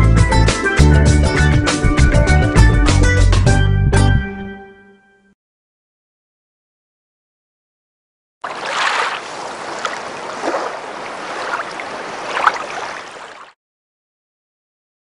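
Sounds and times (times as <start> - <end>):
rushing water: 8.4 - 13.6.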